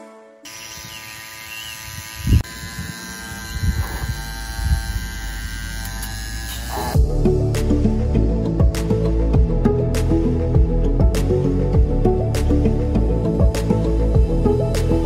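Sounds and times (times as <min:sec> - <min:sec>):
music: 0:00.0 - 0:00.5, 0:06.8 - 0:15.0
small motor buzzing: 0:00.4 - 0:07.1.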